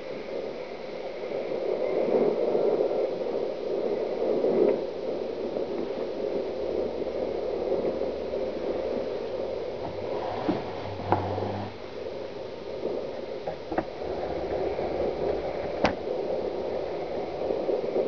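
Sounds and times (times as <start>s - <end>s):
threshing machine running: 8.7s - 17.6s
short knocks: 9.8s - 11.8s.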